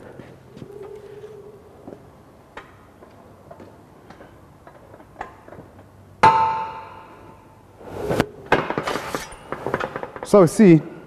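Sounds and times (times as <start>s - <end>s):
sharp ringing metal clang: 6.2s - 7.6s.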